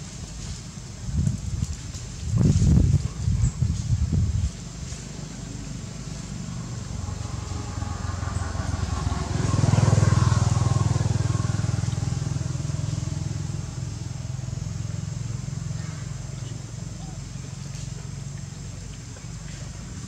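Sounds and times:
vehicle engine passing by: 0:04.8 - 0:20.0.

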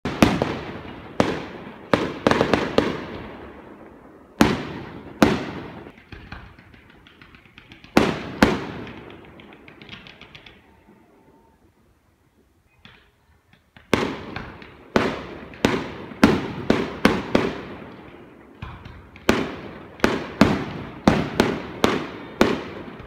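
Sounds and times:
firework shells booming: 0:00.0 - 0:10.8, 0:12.8 - 0:23.0
crackling firework pops: 0:04.4 - 0:10.7, 0:12.7 - 0:23.0.

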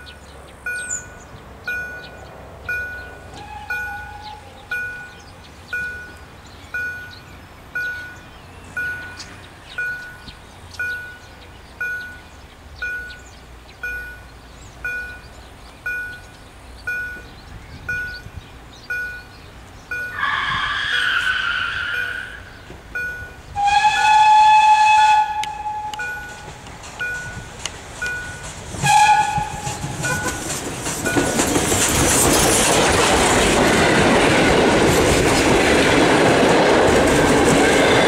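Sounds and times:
level crossing bell dinging: 0:00.7 - 0:05.2, 0:25.9 - 0:27.5
steam locomotive whistle: 0:03.3 - 0:05.0, 0:20.0 - 0:22.5, 0:23.6 - 0:26.6, 0:28.8 - 0:30.4.

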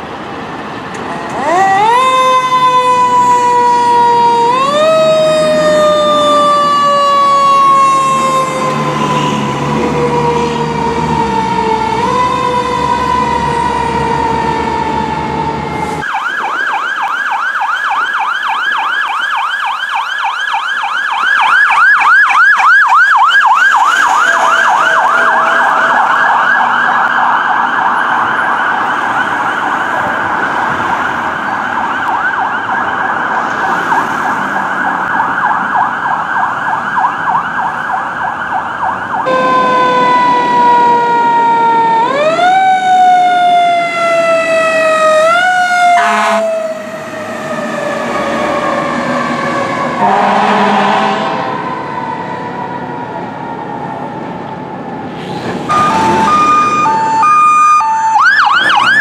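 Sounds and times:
fire truck siren: 0:00.0 - 0:59.0
horn blast: 0:23.8 - 0:26.6, 0:46.0 - 0:46.5, 0:50.0 - 0:51.5.

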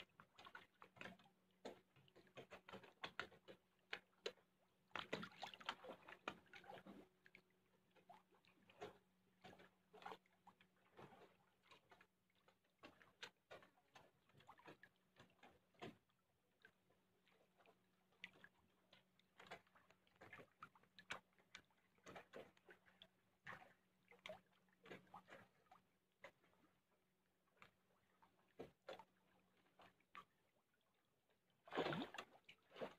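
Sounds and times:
fish splashing at water surface: 0:31.6 - 0:32.9.

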